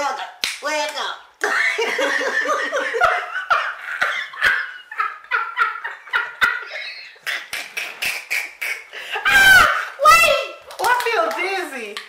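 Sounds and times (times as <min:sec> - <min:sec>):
people laughing hard: 0:01.5 - 0:09.9.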